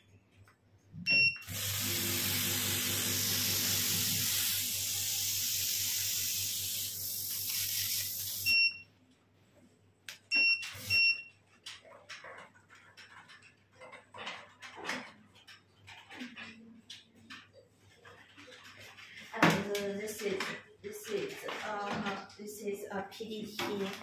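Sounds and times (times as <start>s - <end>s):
mist spray hissing: 1.5s - 8.5s
short electronic beeps: 8.4s - 8.8s, 10.3s - 11.3s.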